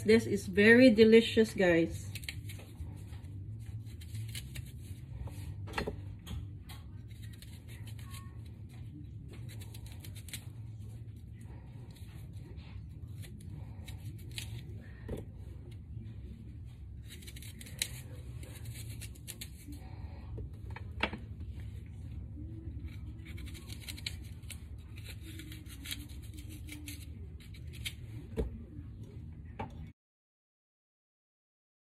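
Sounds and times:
knife cutting apple: 2.1s - 11.1s, 11.8s - 15.8s, 17.0s - 21.2s, 21.8s - 28.8s.

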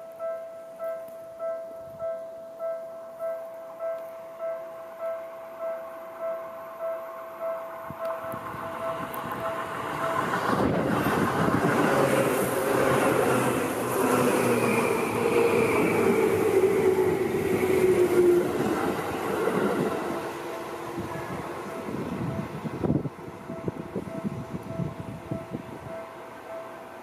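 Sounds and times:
level-crossing warning bell: 0.0s - 27.0s
train wheels rumbling on rails: 7.4s - 27.0s.

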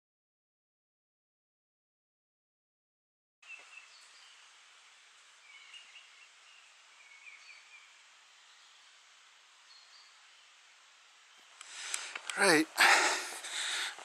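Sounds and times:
soft hiss of air: 3.4s - 14.0s
faint high bird chirps: 5.4s - 9.0s, 9.6s - 10.6s.

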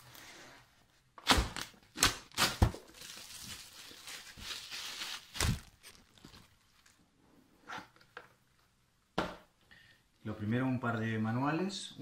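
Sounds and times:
plastic wrap crinkling: 1.6s - 7.0s.

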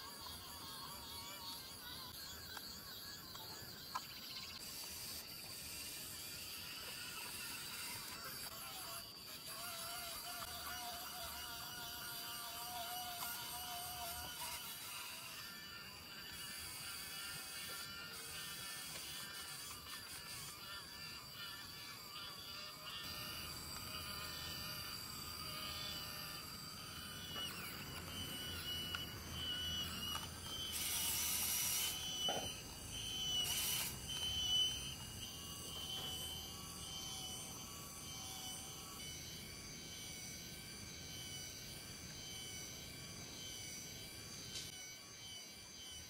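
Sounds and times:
small electric motor whirring: 0.0s - 46.0s.

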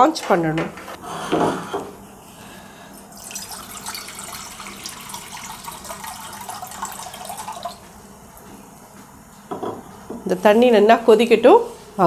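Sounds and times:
water pouring into a pot: 3.1s - 7.8s.

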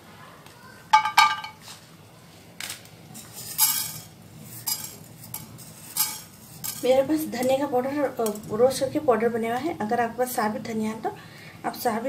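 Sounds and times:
spices clattering into pan: 3.1s - 8.8s.

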